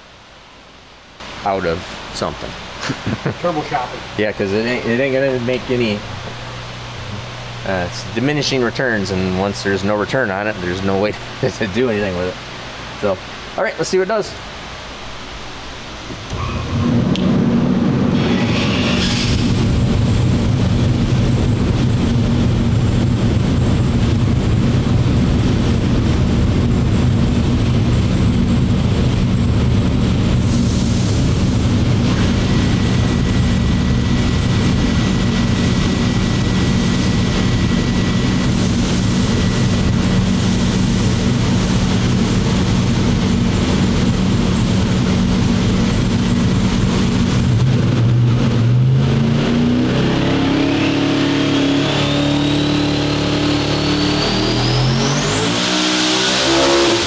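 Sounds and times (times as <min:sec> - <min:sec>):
racing engine droning steadily: 0:31.3 - 0:57.0.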